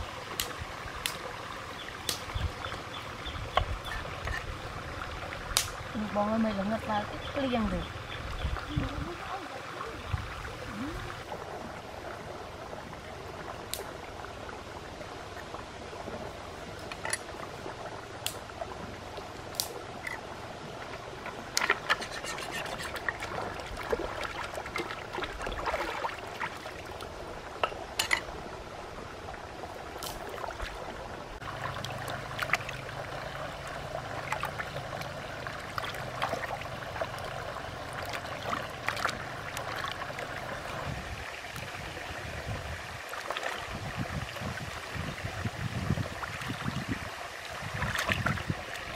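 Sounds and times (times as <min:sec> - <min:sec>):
running stream water: 0:00.0 - 0:48.9
splashing and sloshing water: 0:15.1 - 0:48.9.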